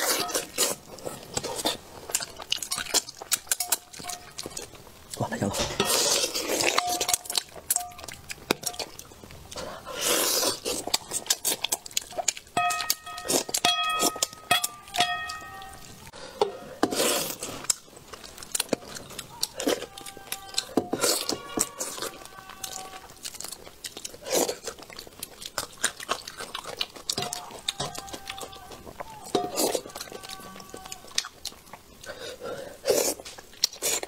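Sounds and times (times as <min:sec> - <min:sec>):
wet chewing and lip smacking: 0:00.0 - 0:16.1, 0:16.9 - 0:34.0
loud slurps: 0:09.6 - 0:11.6.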